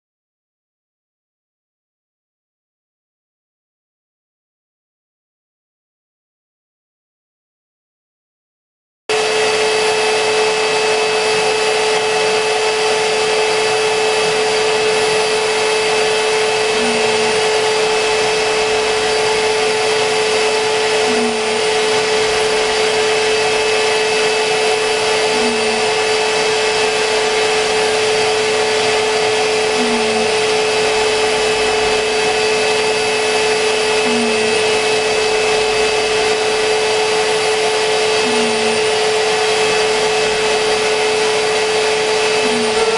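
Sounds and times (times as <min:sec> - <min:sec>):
router spindle high whine: 0:09.1 - 0:42.9.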